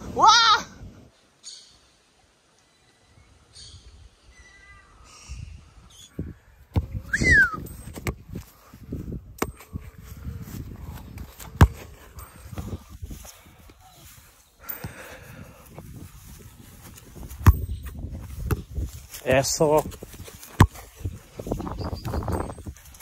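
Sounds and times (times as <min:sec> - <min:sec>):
soccer ball kicks on grass: 0:06.6 - 0:14.2, 0:15.6 - 0:23.0.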